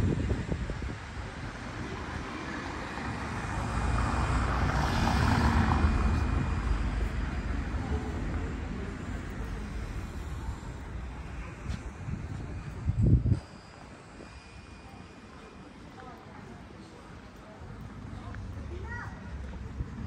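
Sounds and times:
vehicle passing: 0:01.9 - 0:11.9.

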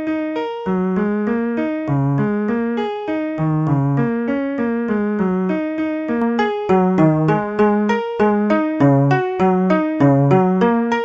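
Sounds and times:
piano single notes: 0:03.3 - 0:11.0.

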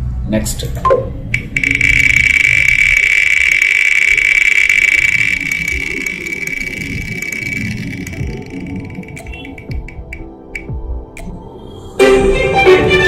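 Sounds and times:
spinning wheel whirring hiss: 0:01.3 - 0:10.8.

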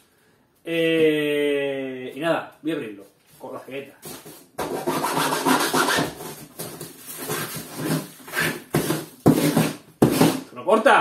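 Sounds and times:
hand saw scraping cardboard: 0:04.1 - 0:10.5.

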